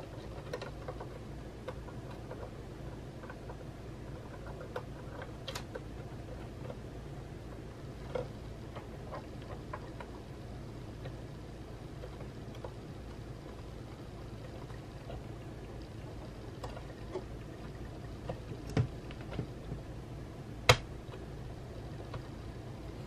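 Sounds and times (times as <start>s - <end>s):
hands clicking and tapping parts: 0.0s - 2.6s, 3.2s - 6.8s, 18.2s - 19.9s, 20.6s - 21.3s
low steady hum: 0.0s - 23.0s.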